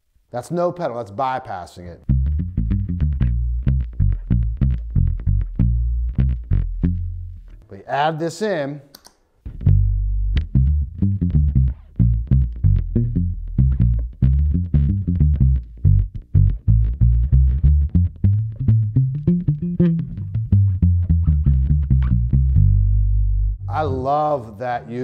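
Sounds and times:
palm-muted electric bass notes: 0:02.1 - 0:07.6, 0:09.5 - 0:24.4.

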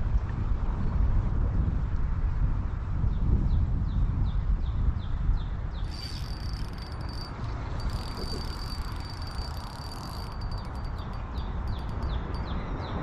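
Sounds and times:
insect trilling: 0:05.8 - 0:12.2.

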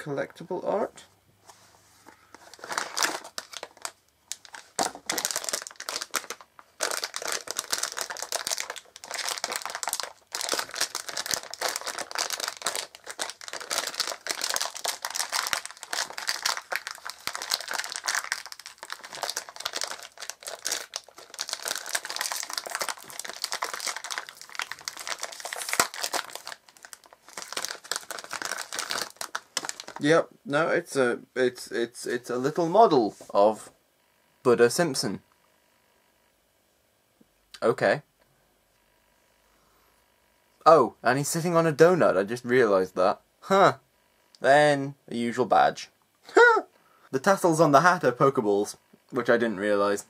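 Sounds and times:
foil wrapper crinkling: 0:02.4 - 0:30.0.

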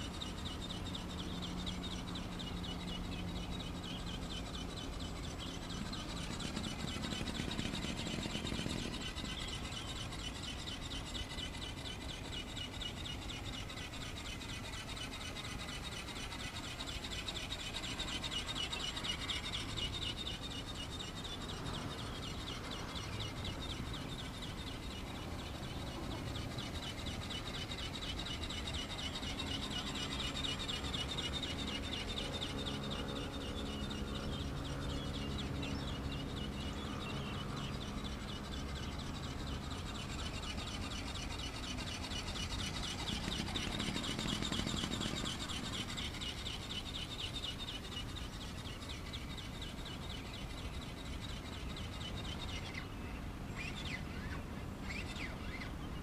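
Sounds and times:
fast high-pitched chirring: 0:37.8 - 0:48.9.

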